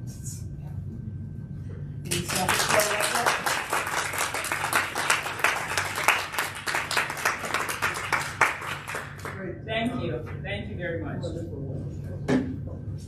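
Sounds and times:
audience applauding: 2.1 - 9.4.

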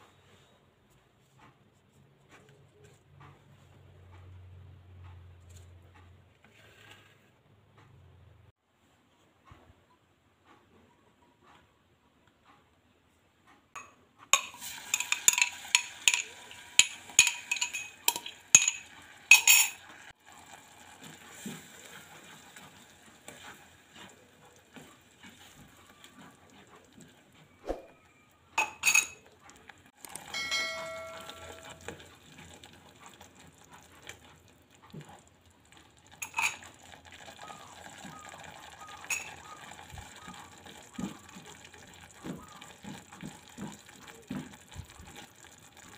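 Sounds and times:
spatula scraping saucepan: 13.8 - 19.9
paste sizzling in oil: 14.4 - 17.2.

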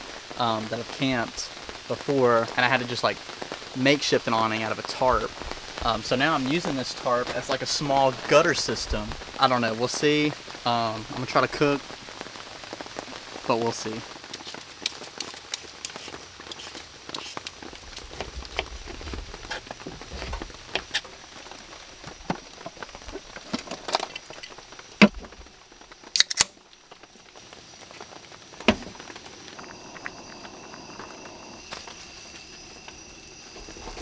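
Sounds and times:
beer can opening: 26.1 - 26.6.

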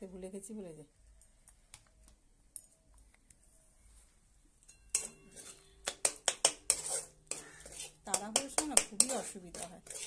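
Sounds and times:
spatula scraping metal pan: 4.9 - 10.0.

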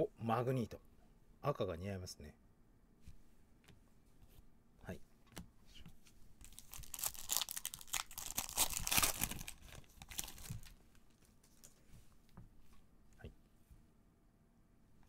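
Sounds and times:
foil wrapper crinkling and tearing: 6.4 - 10.7.

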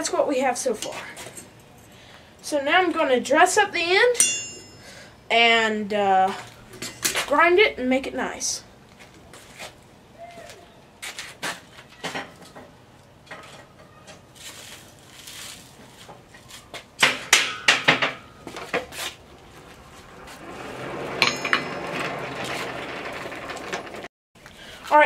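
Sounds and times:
metal tools clanking: 17.2 - 24.1.

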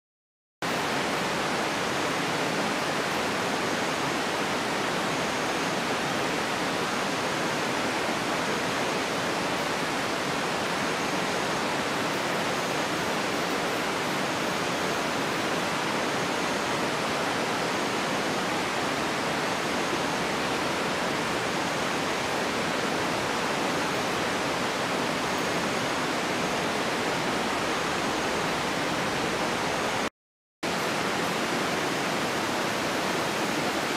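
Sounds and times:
running water rushing: 0.6 - 33.9.

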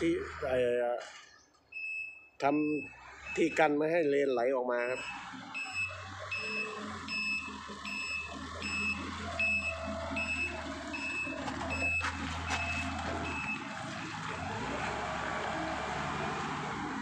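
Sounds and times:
diesel engine drone: 0.0 - 17.0
reversing alarm beeping: 1.7 - 3.8, 4.8 - 14.2.

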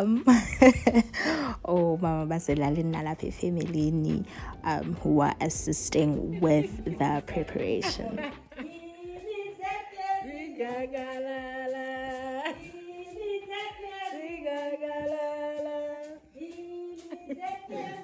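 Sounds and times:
women singing in harmony: 4.2 - 18.0.

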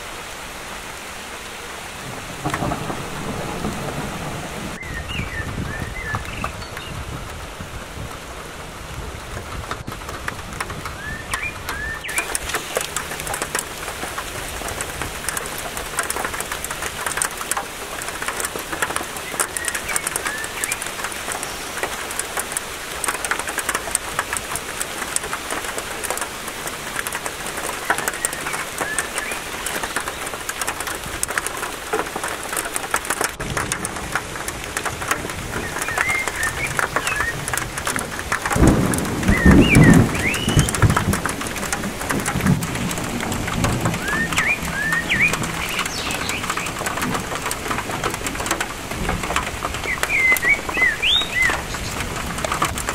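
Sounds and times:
rain pattering on trees: 0.0 - 52.9
bird chirps: 4.8 - 7.0, 11.0 - 12.8, 19.2 - 21.8, 27.8 - 30.2, 35.6 - 37.5, 39.2 - 41.1, 44.0 - 46.8, 49.8 - 52.1.

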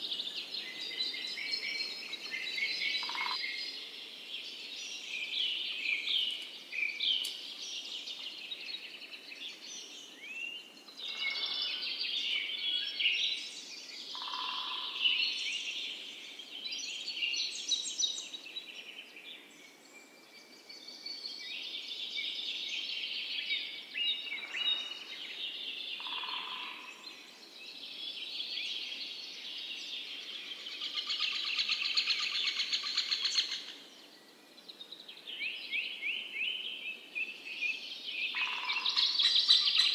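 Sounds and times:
songbirds chirping and warbling: 0.0 - 39.9.

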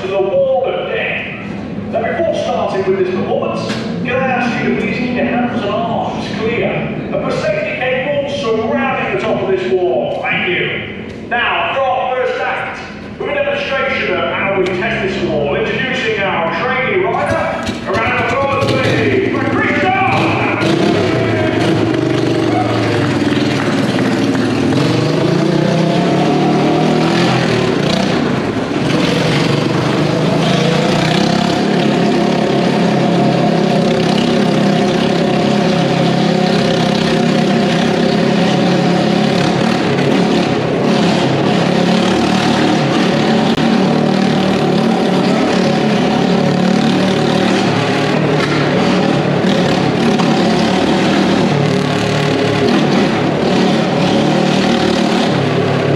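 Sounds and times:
motorcycle engine running hard: 14.4 - 55.9.

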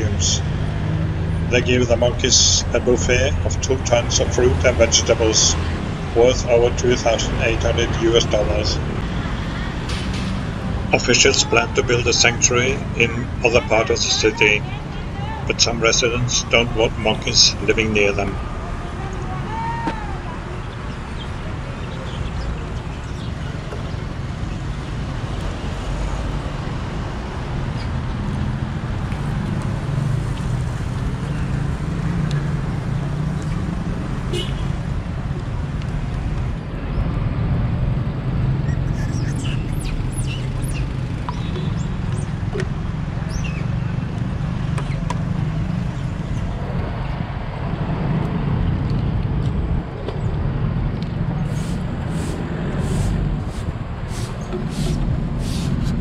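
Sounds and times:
engine drone: 0.0 - 56.0
road traffic rumble: 0.0 - 56.0
vehicles passing on street: 0.0 - 56.0
short hissing bursts: 51.5 - 56.0.

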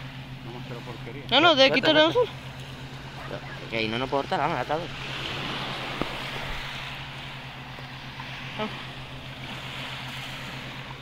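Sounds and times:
waves washing onto shingle: 0.0 - 11.0.

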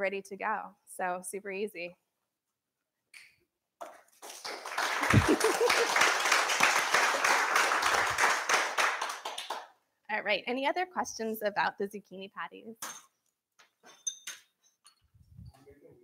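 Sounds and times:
audience clapping: 4.2 - 9.8.

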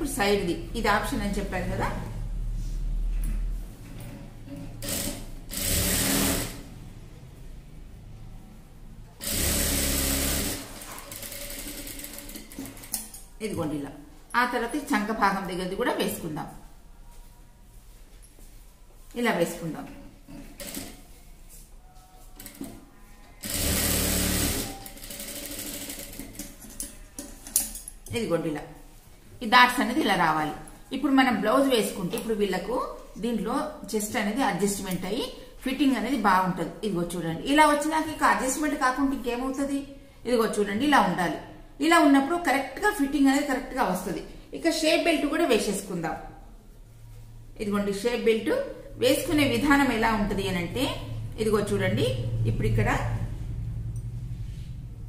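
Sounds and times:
sewing machine stitching: 4.7 - 6.6, 9.2 - 13.1, 23.4 - 26.6.

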